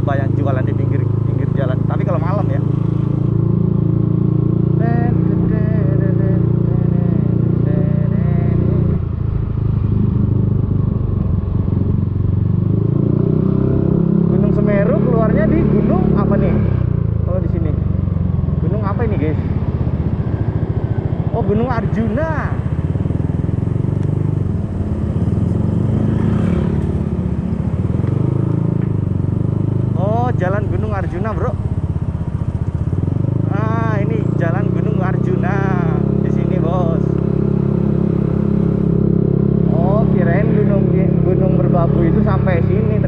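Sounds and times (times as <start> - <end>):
scooter engine running: 0.0 - 43.0.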